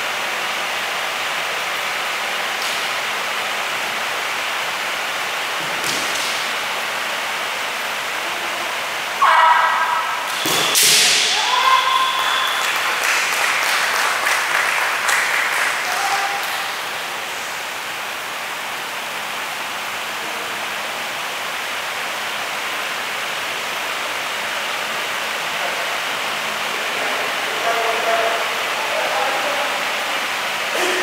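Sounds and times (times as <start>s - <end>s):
bamboo sword strikes: 10.3s - 11.4s
person shouting: 11.2s - 12.3s.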